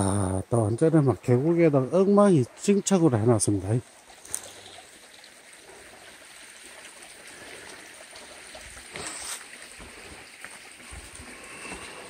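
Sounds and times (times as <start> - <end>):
stream trickling over rocks: 0.0 - 12.0.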